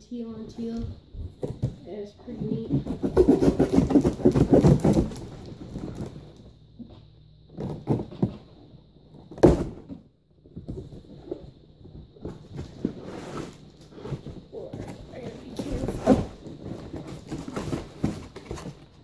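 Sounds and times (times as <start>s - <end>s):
cardboard box rustling and knocking: 1.2s - 6.2s, 9.2s - 19.0s.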